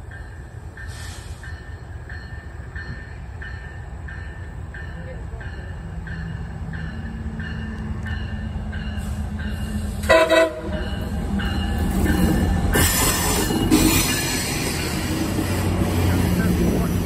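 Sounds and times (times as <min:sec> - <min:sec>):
locomotive bell ringing: 0:00.0 - 0:15.3
train wheels on rails: 0:00.0 - 0:17.0
train horn toots: 0:09.8 - 0:11.0.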